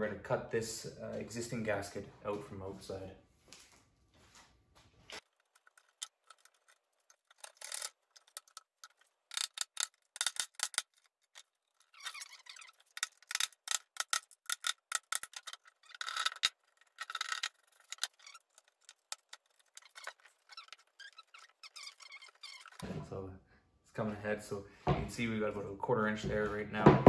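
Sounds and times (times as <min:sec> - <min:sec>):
utility knife scraping: 0:09.3 - 0:22.8.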